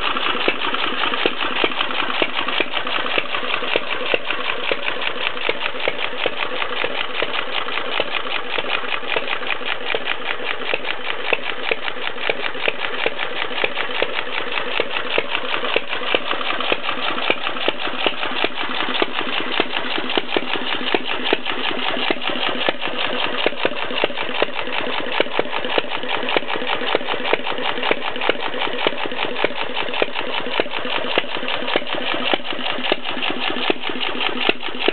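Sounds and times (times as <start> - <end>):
stationary engine clattering: 0.0 - 34.9.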